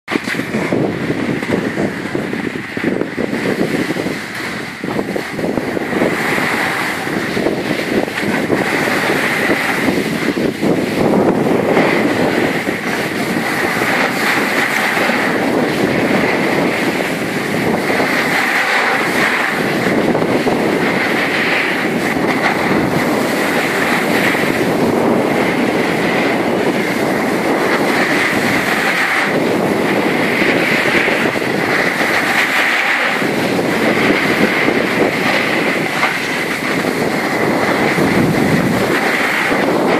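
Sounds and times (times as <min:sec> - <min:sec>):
skis scraping over packed snow: 0:00.1 - 0:39.9
wind buffeting microphone: 0:00.1 - 0:39.9.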